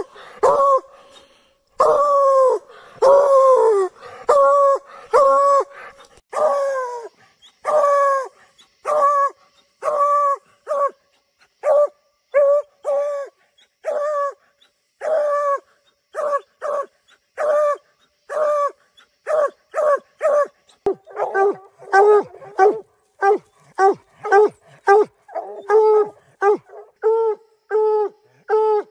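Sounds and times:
dog barking: 19.3 - 25.7.

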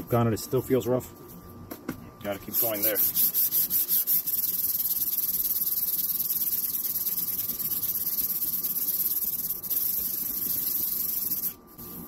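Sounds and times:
sandpaper scratching plastic: 2.5 - 12.0.

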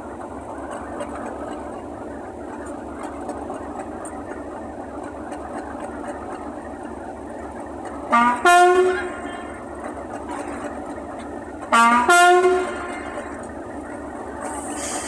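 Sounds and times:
diesel locomotive engine running: 0.0 - 15.0
two-tone locomotive horn: 8.0 - 9.7, 11.6 - 13.5.

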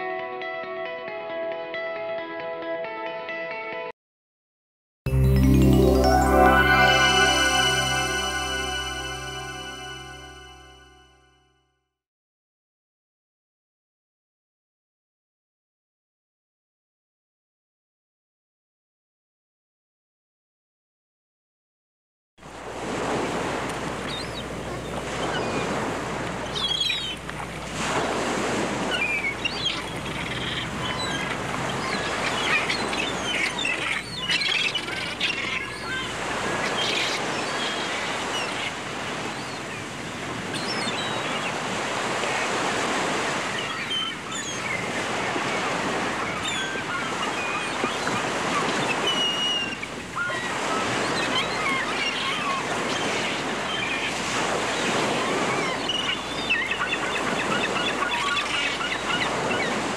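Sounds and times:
waves washing: 5.1 - 10.9, 22.5 - 59.9
bird calls: 24.0 - 27.6, 28.8 - 39.9, 40.6 - 41.6, 43.4 - 59.9.

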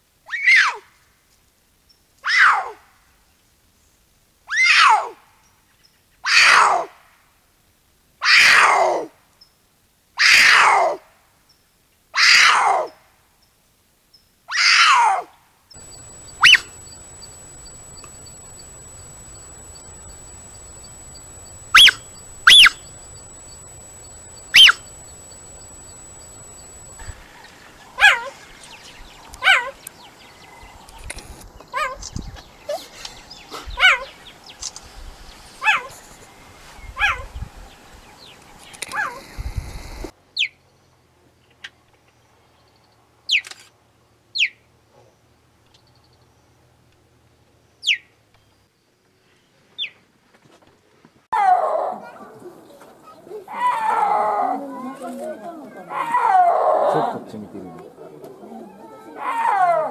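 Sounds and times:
cheetah chirping: 15.8 - 27.2
cougar chirping: 15.8 - 27.2.

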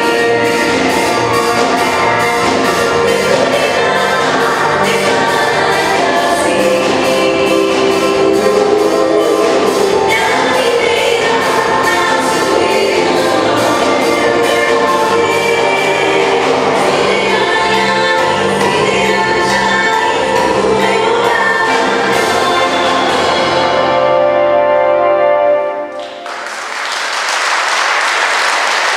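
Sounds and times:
keyboard accompaniment: 0.0 - 26.5
women singing gospel song: 0.1 - 23.9
audience applause: 25.9 - 28.9.

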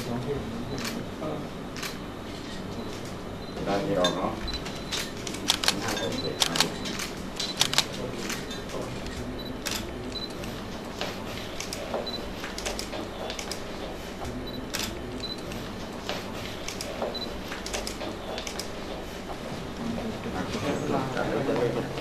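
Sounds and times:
camera shutters clicking: 5.0 - 8.4.

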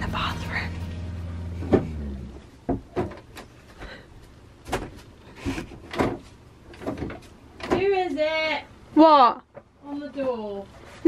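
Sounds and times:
knocking and rattling door: 5.8 - 7.9.

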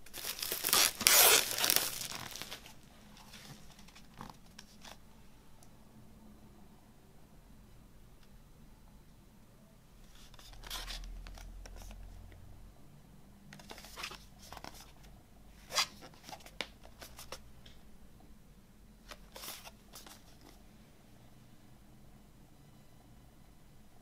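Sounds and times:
cardboard rustling and scraping: 0.1 - 5.0, 19.1 - 20.6.

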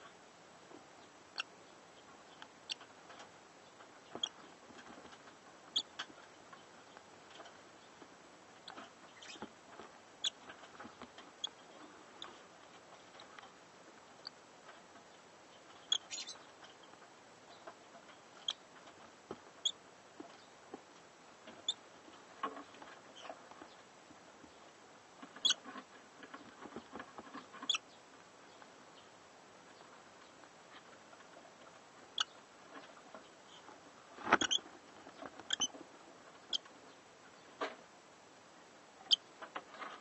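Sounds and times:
birds rustling in wood shavings: 0.0 - 40.0
chicks high-pitched squeaks: 2.4 - 3.3, 4.1 - 6.2, 8.6 - 9.5, 10.2 - 11.6, 15.6 - 16.8, 18.3 - 19.0, 19.6 - 19.8, 25.3 - 25.8, 26.4 - 27.9, 32.1 - 33.7, 34.4 - 35.8, 36.4 - 36.7.

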